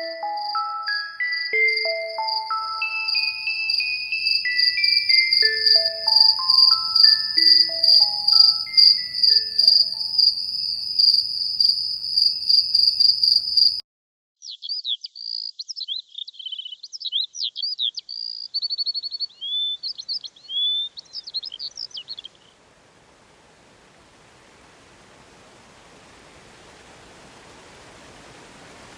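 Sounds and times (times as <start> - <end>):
soft melodic notes: 0.0 - 10.2
crickets chirping: 0.0 - 13.8
songbird singing: 0.0 - 13.8, 14.4 - 22.6.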